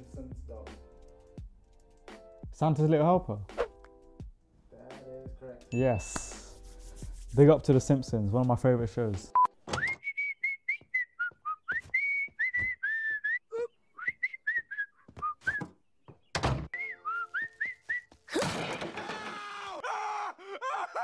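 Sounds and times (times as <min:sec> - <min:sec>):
person whistling a jaunty tune: 0:09.7 - 0:15.7, 0:16.8 - 0:18.3
cartoon man screaming: 0:19.1 - 0:21.0.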